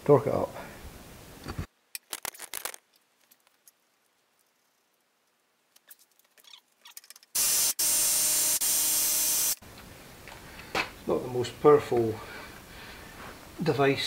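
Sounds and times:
electric impact wrench rattling: 7.2s - 9.6s.

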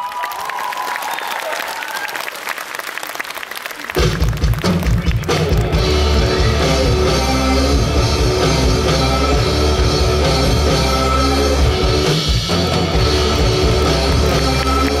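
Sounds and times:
loud rock music: 4.2s - 15.0s.

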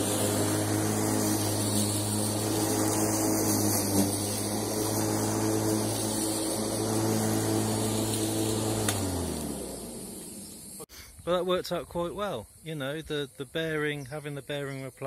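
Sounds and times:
motor winding down: 0.0s - 10.8s
lawn mower motor humming: 0.0s - 10.9s.

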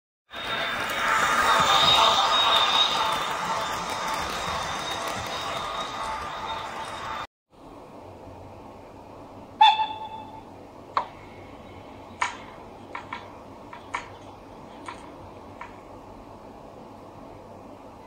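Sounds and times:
low steady hum: 7.5s - 18.0s.

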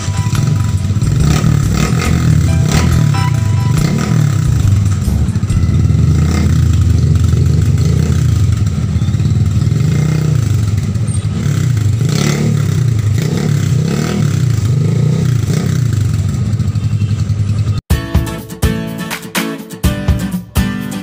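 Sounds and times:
motorcycle engine revving: 0.0s - 17.8s.

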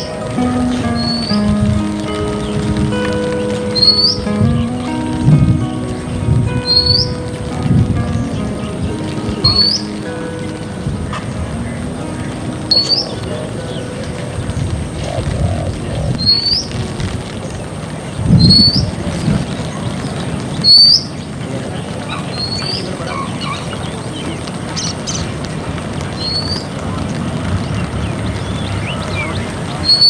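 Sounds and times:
outdoor background noise: 0.0s - 30.0s
bird whistled call: 3.8s - 4.3s, 20.6s - 21.2s.

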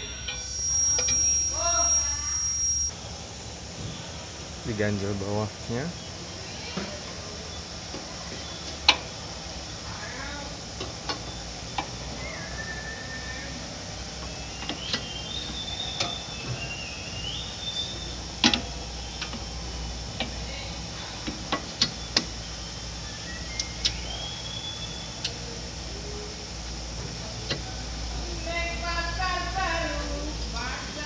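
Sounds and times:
metallic clicks of brake parts: 18.4s - 19.5s.

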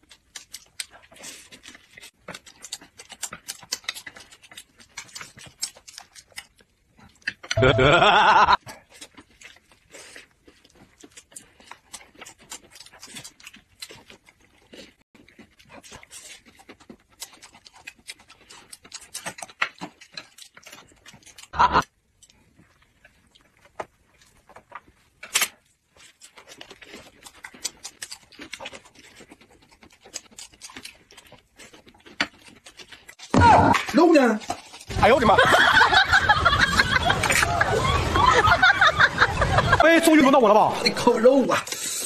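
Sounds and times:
people chewing and crunching: 0.0s - 42.0s
wet mouth clicks: 2.3s - 6.5s, 41.6s - 42.0s.

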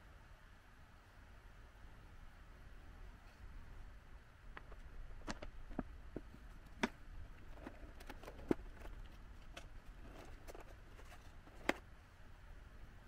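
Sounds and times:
paper lid crinkling and scraping: 4.6s - 11.8s.

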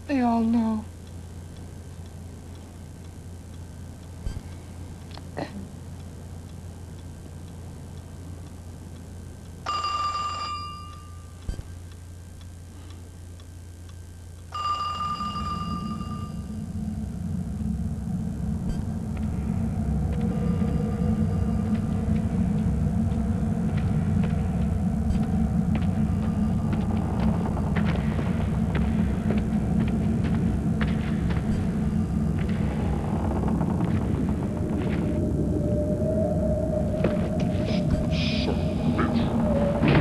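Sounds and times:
telephone ringing: 9.7s - 11.2s, 14.5s - 16.5s
low rumble: 15.0s - 40.0s.

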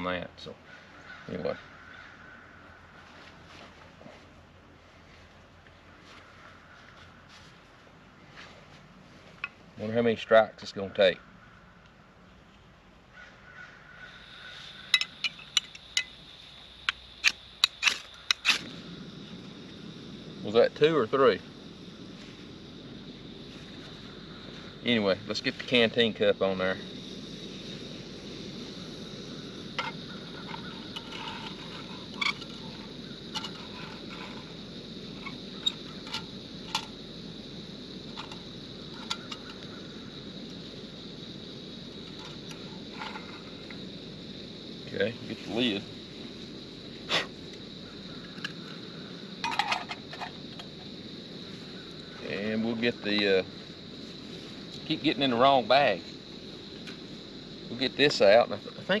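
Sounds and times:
camp stove hissing: 13.9s - 59.0s
fire striker scraping clicks: 16.8s - 18.7s, 29.8s - 34.5s, 35.1s - 37.0s, 38.1s - 39.7s.

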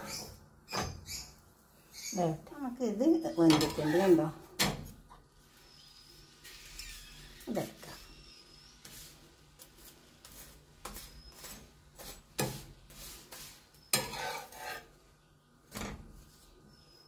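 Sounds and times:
metal spatula scraping griddle: 3.4s - 4.4s, 10.3s - 16.1s.

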